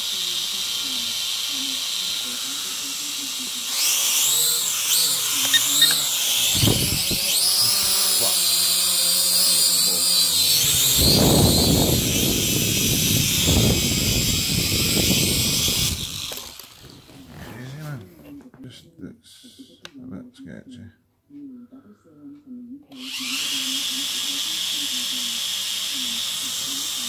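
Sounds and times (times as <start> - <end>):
drone propellers whining: 0.0 - 17.1.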